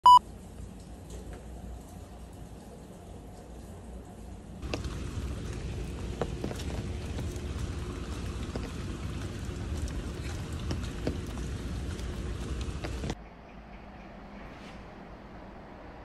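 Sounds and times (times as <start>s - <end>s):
drips and ticks: 0.2s - 13.2s
light rain on wet paving: 0.2s - 13.2s
steady low rumble: 4.6s - 16.0s.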